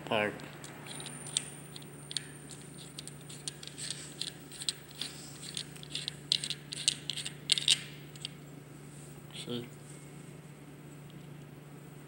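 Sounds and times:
metal parts clicking and rattling: 0.4s - 8.3s.

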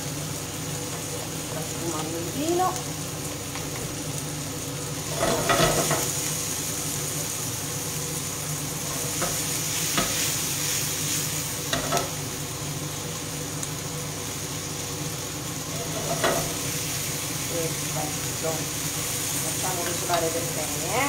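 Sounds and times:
vegetables sizzling in a frying pan: 0.0s - 21.0s
wooden utensil scraping a pan: 5.1s - 6.1s, 15.8s - 16.6s.

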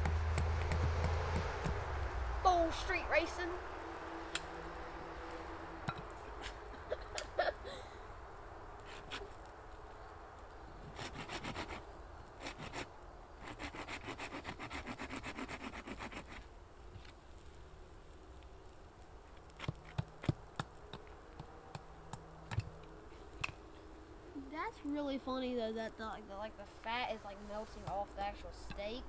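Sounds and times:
hand saw cutting wood: 10.9s - 11.8s, 12.4s - 16.4s.

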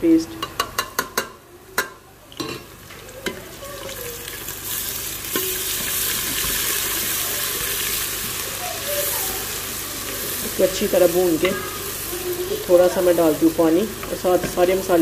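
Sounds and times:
food sizzling in hot oil: 2.3s - 15.0s.

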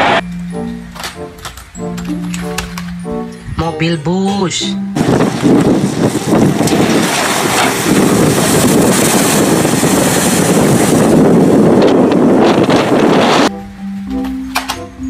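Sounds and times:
wind noise on microphone: 4.8s - 13.5s.

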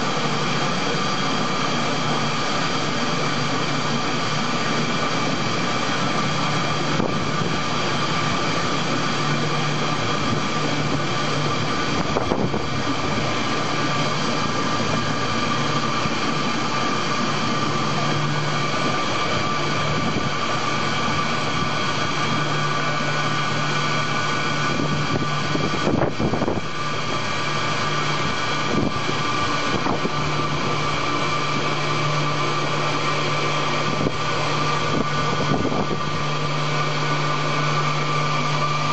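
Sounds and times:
mixer motor hum and whine: 0.0s - 38.9s.

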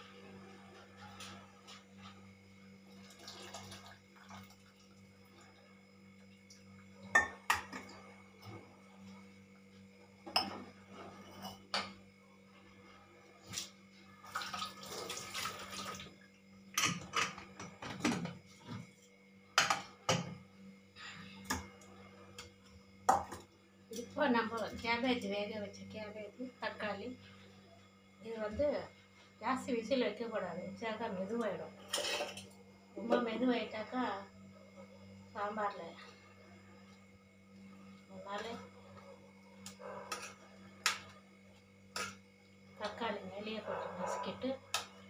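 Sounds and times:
steady low hum: 0.0s - 14.4s, 15.9s - 45.0s
metal pots and utensils clanking: 31.8s - 32.5s, 41.9s - 42.2s.

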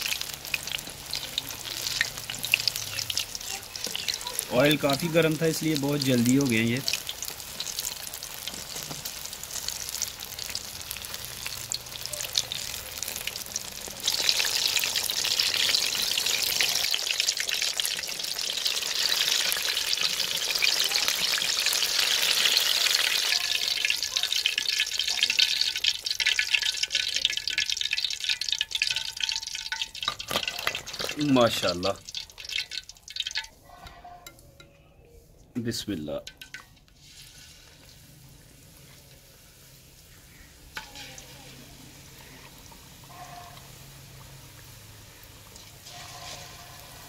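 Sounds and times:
food deep-frying in hot oil: 0.0s - 34.4s, 35.6s - 47.0s.

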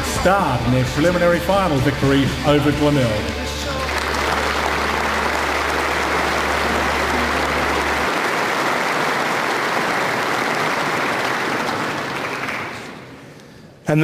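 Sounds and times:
audience applauding: 1.0s - 13.4s.

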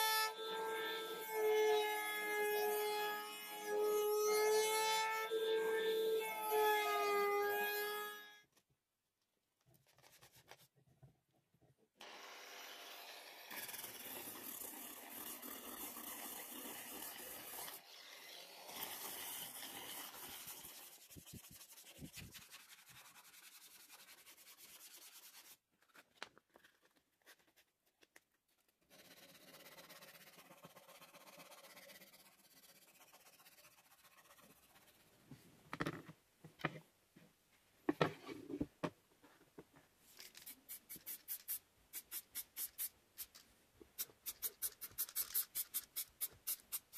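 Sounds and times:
sandpaper rubbing on wood: 18.7s - 25.6s.

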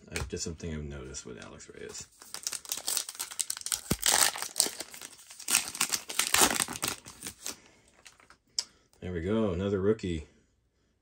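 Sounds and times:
foil wrapper crinkling and tearing: 2.1s - 8.3s.

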